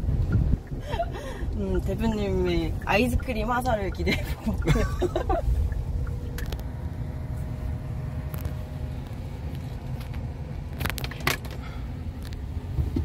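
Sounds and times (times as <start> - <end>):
faint steady whine: 0.0 - 13.0
road and tyre rumble: 0.0 - 13.0.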